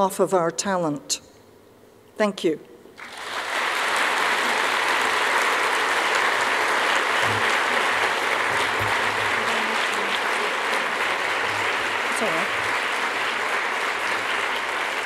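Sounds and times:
audience applauding: 3.0 - 15.0.

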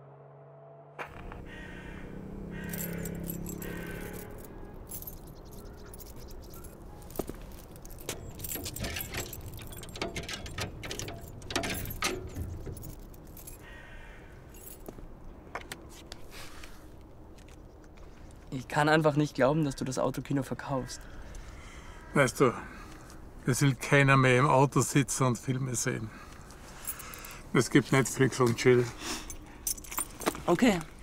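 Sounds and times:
outdoor background noise: 0.0 - 31.0
keys jangling: 2.5 - 13.8, 14.5 - 14.9, 26.7 - 27.4, 29.2 - 31.0.

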